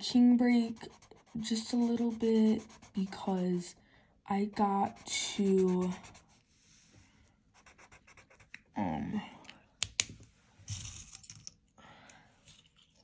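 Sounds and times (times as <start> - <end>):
marker scratching on paper: 0.3 - 3.6, 4.3 - 6.4, 7.6 - 8.6.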